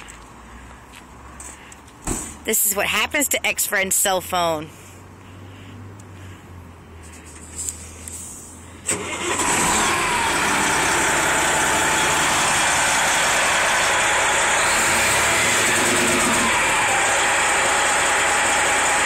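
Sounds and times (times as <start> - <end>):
truck diesel engine running: 8.8 - 19.0.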